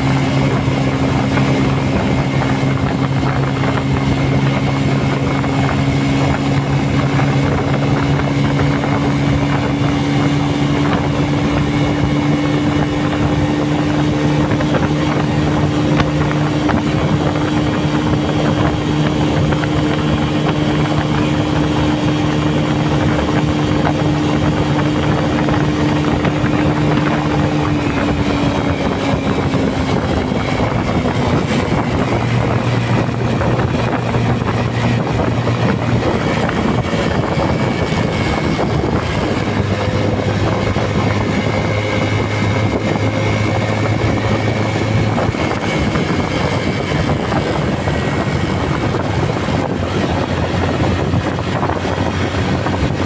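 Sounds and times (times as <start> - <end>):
motorcycle engine running: 0.0 - 53.0
wind rush over microphone: 0.0 - 53.0.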